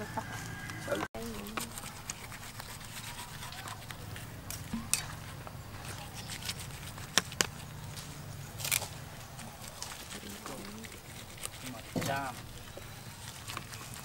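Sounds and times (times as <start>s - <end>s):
sharp crackles: 3.5s - 14.0s.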